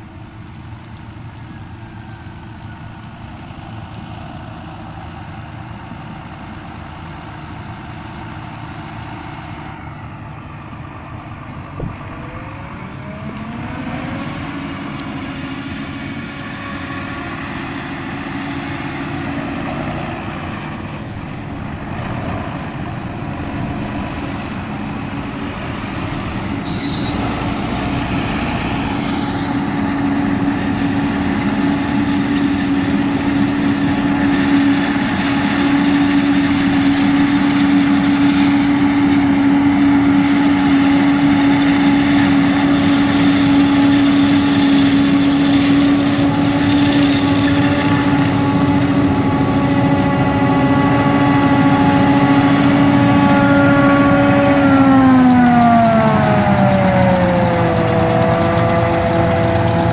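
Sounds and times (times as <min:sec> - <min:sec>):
tractor engines: 0:00.0 - 0:59.9
forage harvester chopping: 0:55.6 - 0:59.9.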